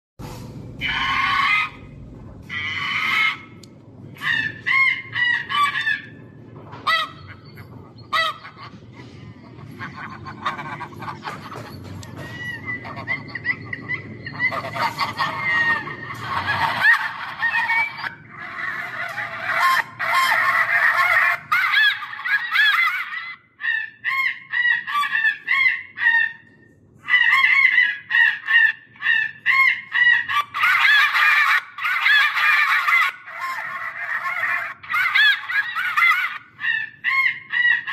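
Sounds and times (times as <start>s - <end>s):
electronic goose honking: 0.8s - 1.9s.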